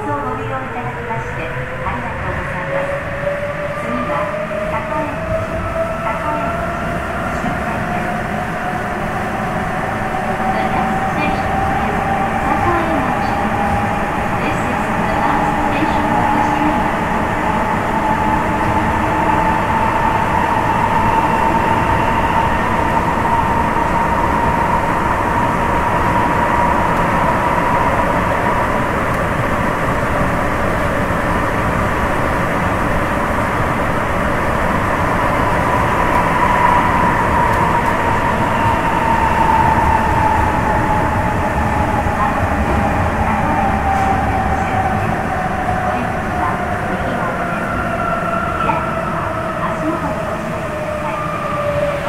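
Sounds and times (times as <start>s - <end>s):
subway train rumble with whine: 0.0s - 52.0s.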